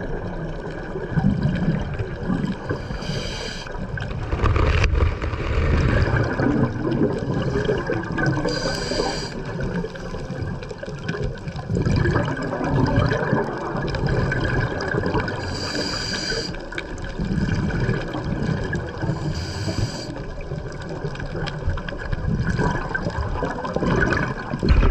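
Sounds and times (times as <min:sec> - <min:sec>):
low underwater rumble: 0:00.0 - 0:16.1, 0:16.7 - 0:24.9
gurgling exhaled bubbles: 0:00.0 - 0:24.9
regulator hissing inhalations: 0:02.7 - 0:03.7, 0:08.4 - 0:09.5, 0:15.4 - 0:16.6, 0:19.2 - 0:20.2.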